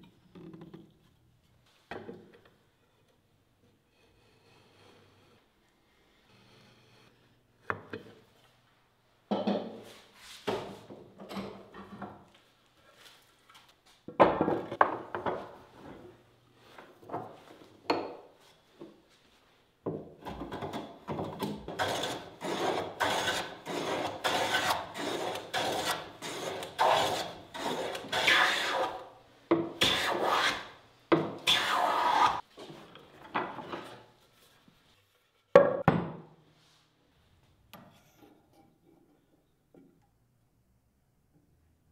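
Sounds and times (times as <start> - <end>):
hand tool scraping wood: 21.5 - 29.2, 29.8 - 30.8, 31.4 - 32.4.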